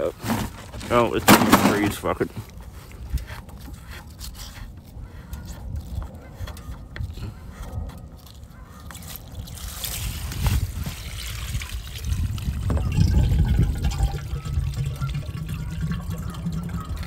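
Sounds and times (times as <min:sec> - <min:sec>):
water trickling and gurgling: 0:09.0 - 0:17.0.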